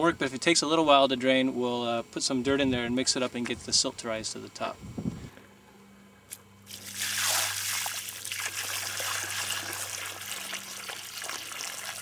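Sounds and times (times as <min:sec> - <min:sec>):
water pouring into hole: 0:06.7 - 0:12.0.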